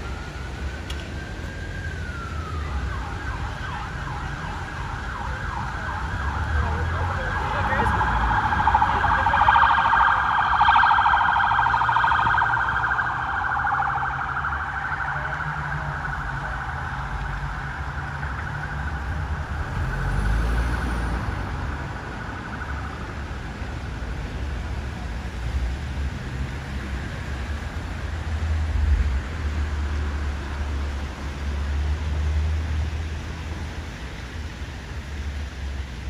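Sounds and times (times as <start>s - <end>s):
police siren yelp: 0.0s - 19.2s, 21.6s - 23.6s
low traffic rumble: 0.0s - 36.0s.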